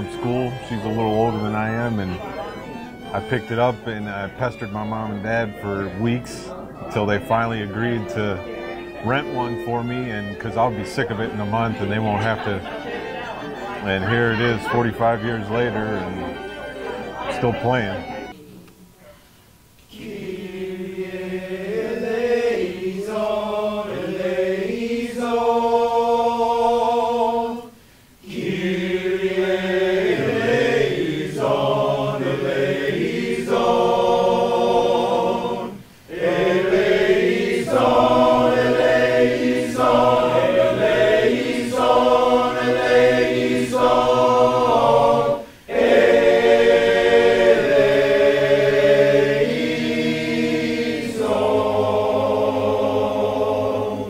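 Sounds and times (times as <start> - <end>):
men's choir singing: 0.0 - 18.4, 19.9 - 54.0.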